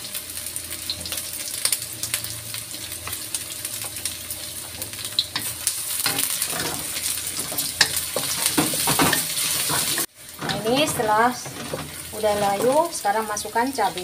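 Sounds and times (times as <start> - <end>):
shallots sizzling in oil: 0.0 - 14.0
spatula scraping a wok: 4.7 - 13.0.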